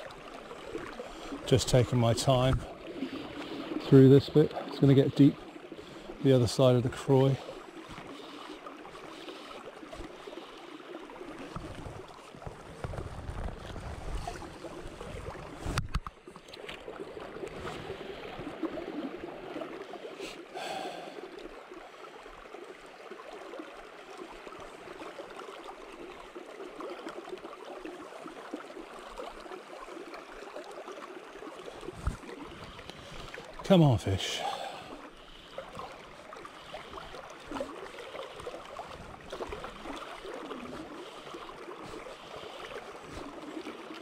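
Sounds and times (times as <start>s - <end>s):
river water swishing around legs: 0.0s - 44.0s.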